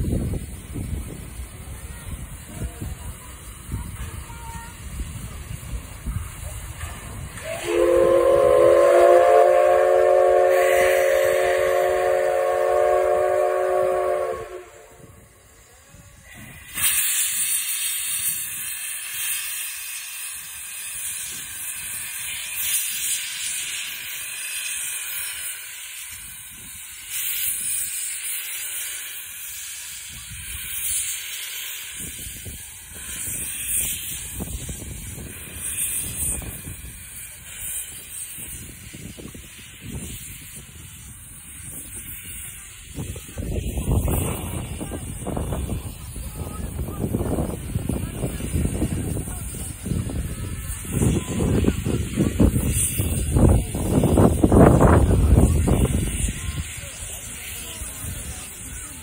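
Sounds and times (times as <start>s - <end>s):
steam hissing: 0.0s - 59.0s
steam locomotive whistle: 7.4s - 15.6s, 47.0s - 58.8s.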